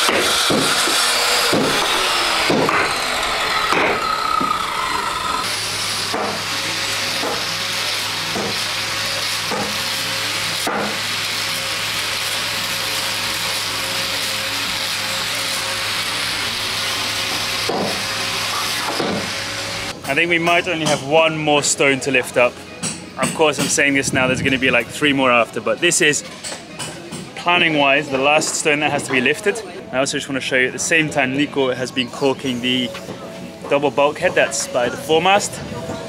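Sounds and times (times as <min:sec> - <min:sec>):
hammer striking chisel into wood: 0:00.0 - 0:01.8, 0:02.4 - 0:02.9, 0:03.7 - 0:04.0, 0:06.1 - 0:06.4, 0:08.3 - 0:08.6, 0:09.5 - 0:09.8, 0:10.6 - 0:11.0
steady low hum: 0:00.6 - 0:08.8.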